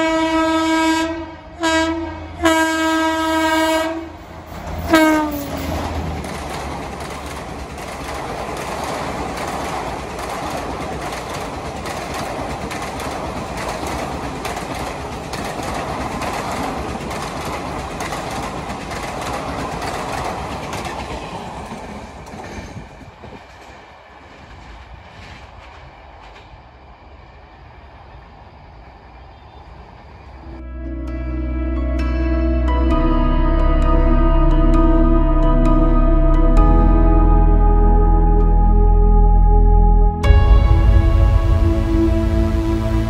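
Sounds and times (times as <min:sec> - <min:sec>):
train wheels on rails: 0:01.6 - 0:30.6
clickety-clack over rail joints: 0:04.4 - 0:26.8.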